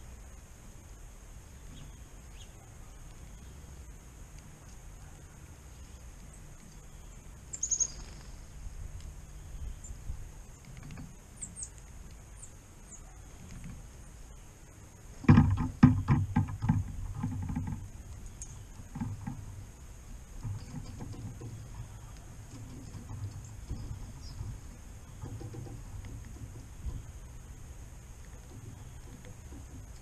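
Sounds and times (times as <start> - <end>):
faint high bird chirps: 1.4 - 14.8, 18.2 - 18.8
woodpecker knocking on feeder: 15.2 - 19.7, 20.3 - 27.3, 28.1 - 30.0.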